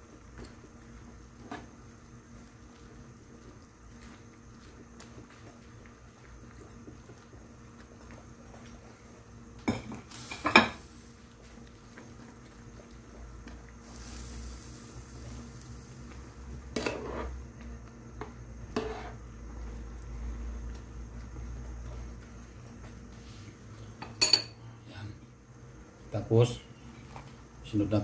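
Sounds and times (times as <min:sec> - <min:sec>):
metal spoon stirring a pan: 0:16.7 - 0:17.4, 0:18.7 - 0:19.2.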